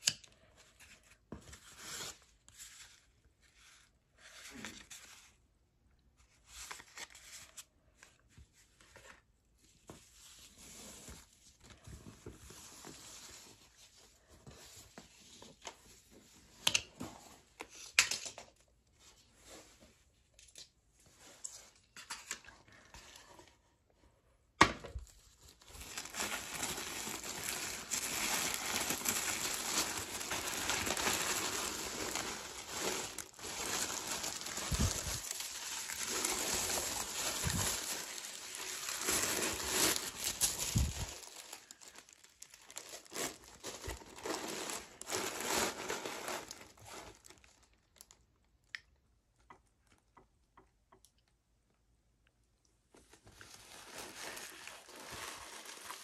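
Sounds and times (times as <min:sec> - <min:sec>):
tissue paper crinkling: 0:06.2 - 0:16.0, 0:25.1 - 0:48.2, 0:53.0 - 0:56.0.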